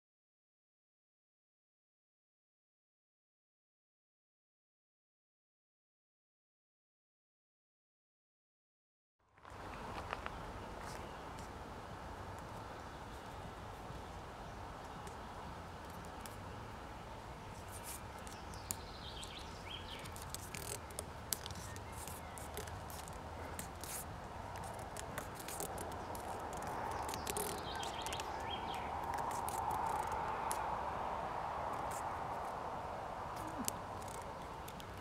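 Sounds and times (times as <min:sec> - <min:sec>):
steady background hiss: 0:09.4 - 0:35.0
plastic tape crackling: 0:17.5 - 0:30.7, 0:33.3 - 0:35.0.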